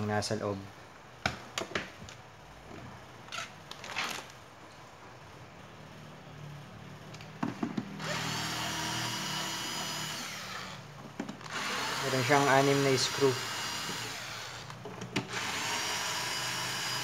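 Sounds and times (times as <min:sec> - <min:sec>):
cordless drill whirring: 0:08.0 - 0:10.8, 0:11.4 - 0:17.0.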